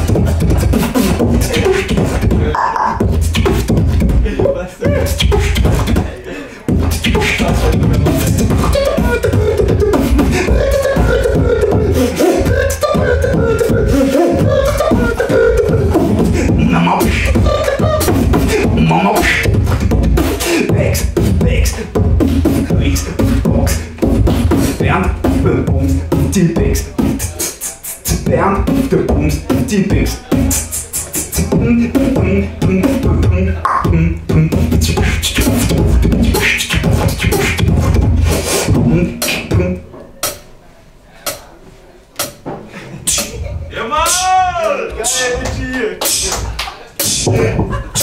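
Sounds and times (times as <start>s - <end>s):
beatboxing clicks and beats: 0.0s - 40.5s, 41.2s - 44.3s, 44.9s - 48.0s
hummed melody: 4.8s - 40.4s.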